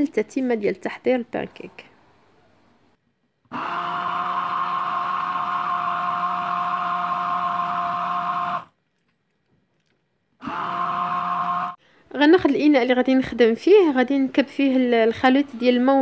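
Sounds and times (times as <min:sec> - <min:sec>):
hand blender motor whining: 0:03.5 - 0:08.8, 0:10.4 - 0:11.8.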